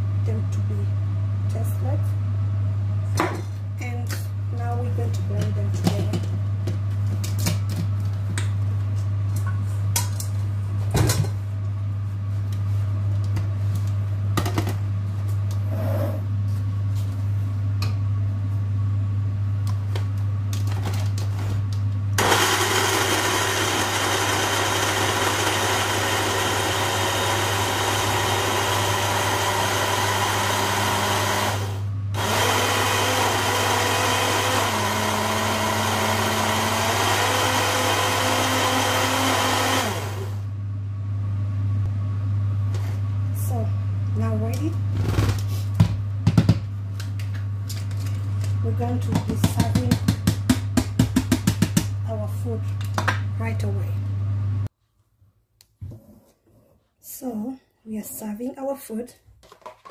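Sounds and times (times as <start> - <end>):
blender grinding nuts: 22.2 - 40.5.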